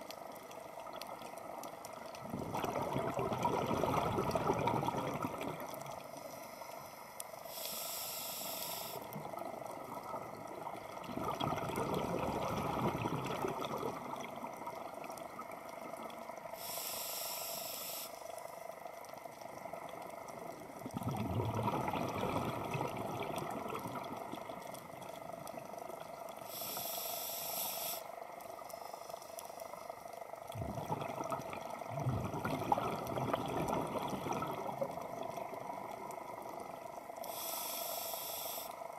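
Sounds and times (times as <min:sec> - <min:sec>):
exhaled bubbles rushing: 0:02.2 - 0:05.9, 0:09.2 - 0:15.5, 0:20.8 - 0:26.1, 0:30.5 - 0:36.5
regulator inhale hiss: 0:06.0 - 0:09.2, 0:16.5 - 0:18.5, 0:26.4 - 0:29.8, 0:37.2 - 0:38.9.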